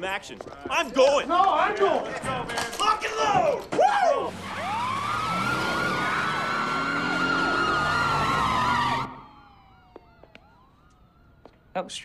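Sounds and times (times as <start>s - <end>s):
police sirens wailing: 3.1s - 12.0s.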